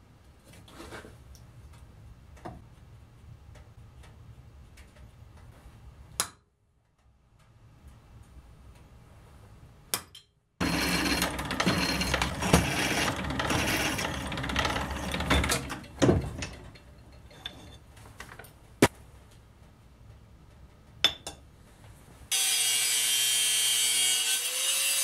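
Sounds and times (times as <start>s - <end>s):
drill press drilling steel: 10.6s - 16.6s.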